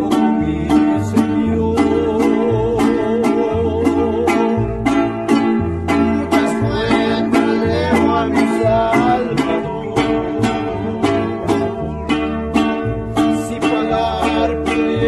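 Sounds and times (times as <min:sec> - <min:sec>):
mariachi band playing: 0:00.0 - 0:15.0.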